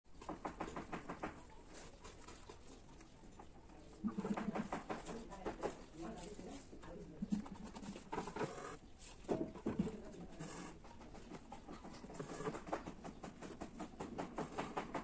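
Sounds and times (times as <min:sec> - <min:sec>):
needle and thread rustling through fabric: 0:01.6 - 0:12.8.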